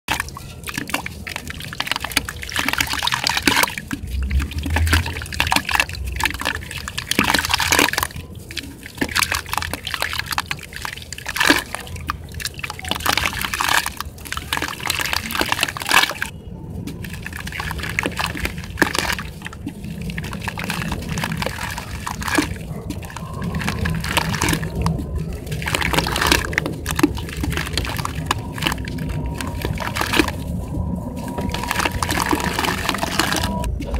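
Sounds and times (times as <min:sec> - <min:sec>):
hands squelching wet sand: 0:00.1 - 0:33.9
water splashing into bucket: 0:00.1 - 0:33.9.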